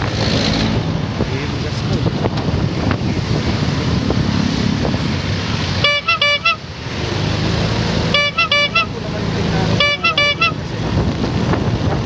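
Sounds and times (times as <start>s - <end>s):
road noise in traffic: 0.0s - 12.0s
vehicle horn short toots: 5.8s - 6.7s, 8.1s - 9.0s, 9.7s - 10.7s.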